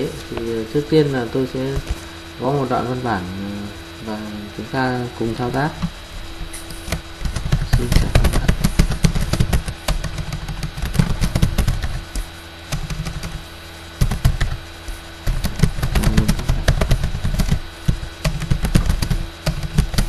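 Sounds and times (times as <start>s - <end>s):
computer keyboard typing: 6.8s - 20.0s.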